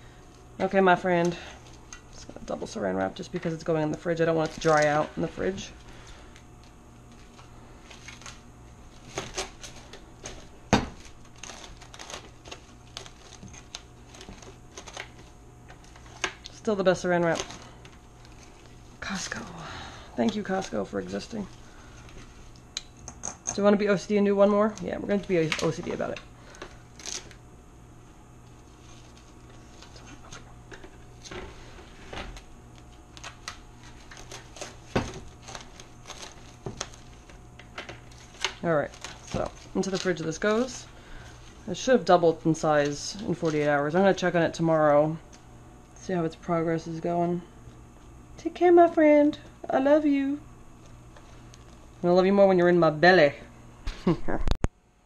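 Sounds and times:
cling wrap crackling: 3.5 - 23.0, 23.9 - 27.5, 28.3 - 44.2.

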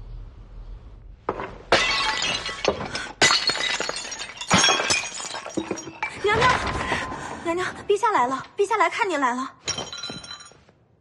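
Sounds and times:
porcelain vases shattering: 1.4 - 7.0, 9.6 - 10.7
shards clattering and ringing: 9.7 - 10.6.

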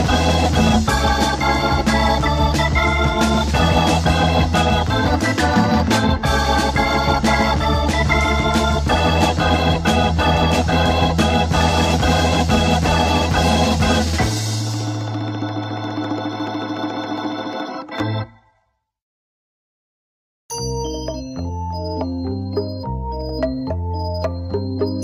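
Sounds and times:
drums keeping steady beat: 0.0 - 15.3
bass: 0.0 - 18.3, 20.5 - 25.0
organ chords: 0.0 - 18.6, 20.6 - 25.0.

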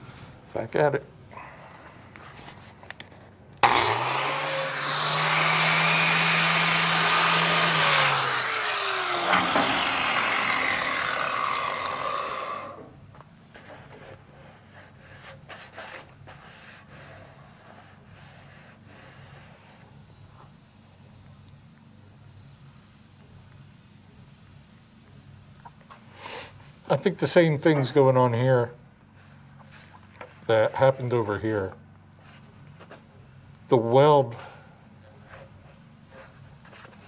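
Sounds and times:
electric grinder grinding steel: 3.6 - 12.9.

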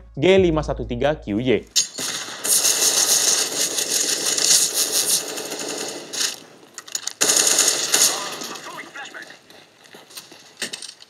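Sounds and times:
rapid automatic gunfire: 2.0 - 6.5, 7.2 - 9.3.

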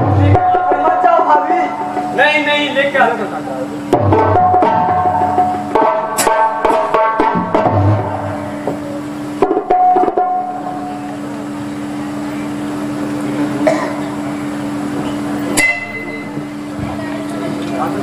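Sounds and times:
drum strikes: 0.0 - 13.0, 13.6 - 17.0
low steady held tone: 15.4 - 17.2.

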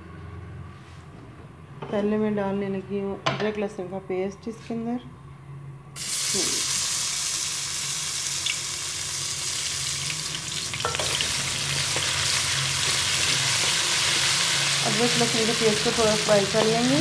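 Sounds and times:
paste sizzling in hot oil: 6.0 - 17.0.

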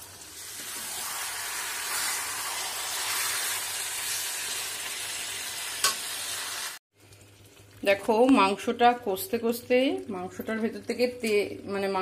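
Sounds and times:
chicken sizzling in hot oil: 0.0 - 8.6.

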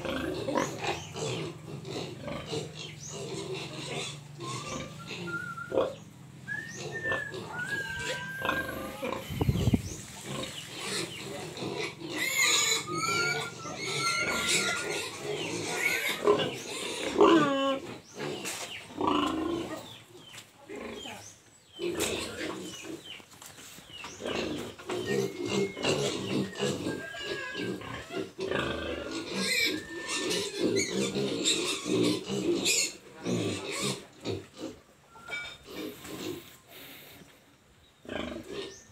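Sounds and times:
pigs squealing: 0.0 - 20.0, 24.1 - 36.9, 38.0 - 38.9
pigs grunting: 0.0 - 23.1, 24.1 - 37.2, 38.0 - 38.9.

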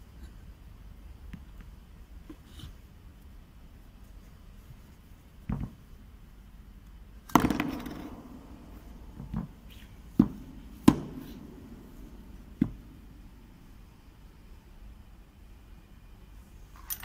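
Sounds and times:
metal parts knocking on tabletop: 7.3 - 8.1.

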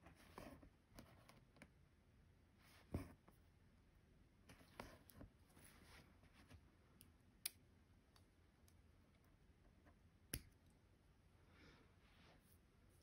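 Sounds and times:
faint soft rustle: 4.5 - 6.8.

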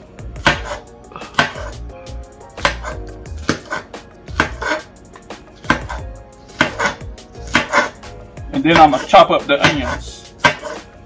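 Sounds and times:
knife chopping on board: 0.4 - 1.8, 2.5 - 4.9, 5.6 - 8.0, 8.7 - 10.9.

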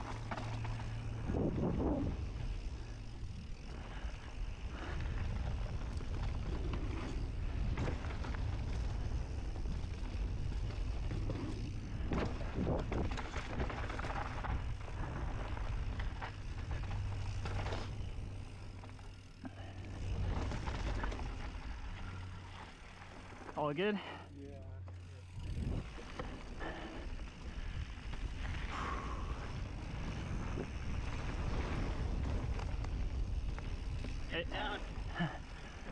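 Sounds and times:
bike clunks and rattles: 0.0 - 2.0, 4.8 - 19.3, 19.9 - 22.0
bike tyre rumble: 0.0 - 35.9
wind noise on microphone: 1.2 - 2.4, 25.5 - 26.0, 28.5 - 34.0.

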